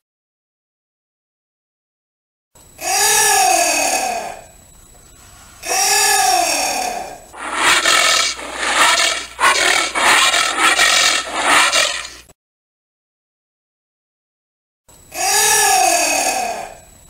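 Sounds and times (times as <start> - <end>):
anteater harsh calls: 7.4 - 12.2.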